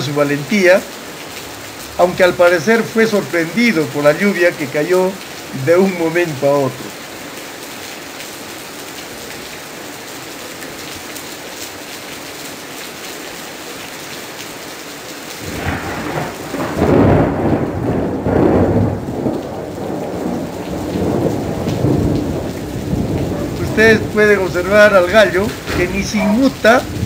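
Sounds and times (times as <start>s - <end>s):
torrential rain and hail: 0.0s - 27.0s
thunder rumbling: 15.4s - 27.0s.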